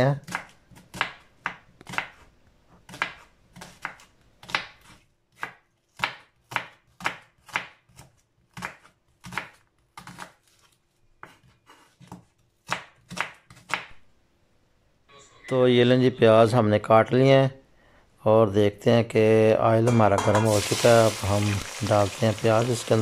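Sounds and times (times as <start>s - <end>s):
knife slicing onions on board: 0.2s - 13.9s.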